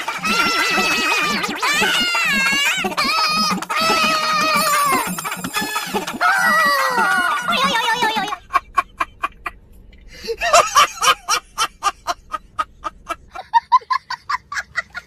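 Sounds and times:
child laughing: 0.0s - 9.4s
man laughing hard: 0.0s - 9.6s, 10.2s - 15.0s.

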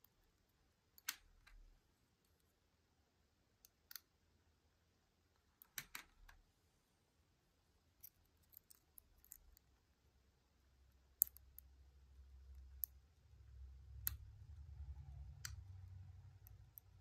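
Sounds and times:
lock pick clicks and taps: 5.6s - 6.4s, 11.2s - 11.6s.

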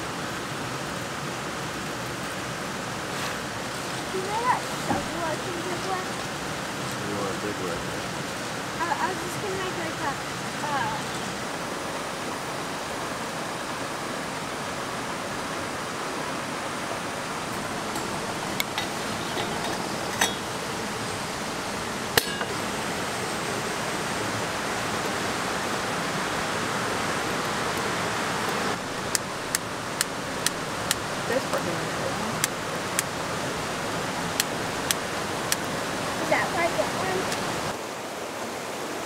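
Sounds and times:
stream rushing: 0.0s - 39.0s
metallic clinks of percolator parts: 17.9s - 20.5s.

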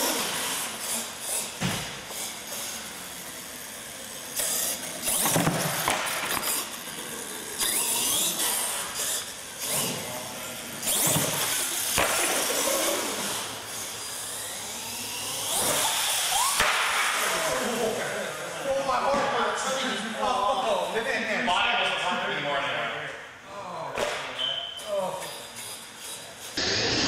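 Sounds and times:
toy truck motor revving with whine: 0.0s - 18.8s, 24.7s - 27.0s.

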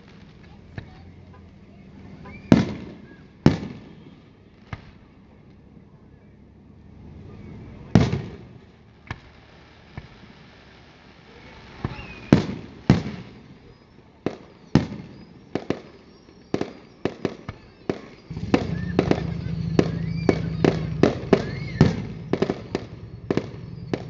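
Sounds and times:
fireworks shells bursting: 17.4s - 24.0s.

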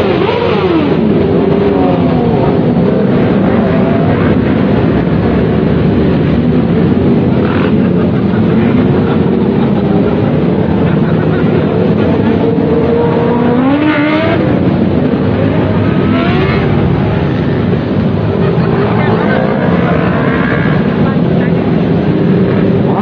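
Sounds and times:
motorcycles riding past: 0.0s - 23.0s.

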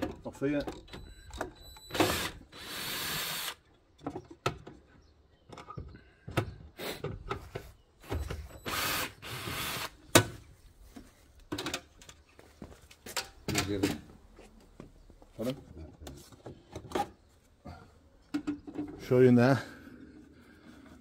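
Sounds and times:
cordless drill whirring: 1.9s - 3.6s, 8.6s - 9.9s.

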